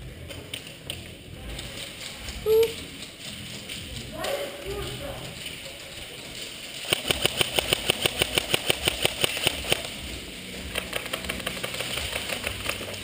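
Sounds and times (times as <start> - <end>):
airsoft rifle firing rapid shots: 6.8 - 10.0, 10.6 - 13.0.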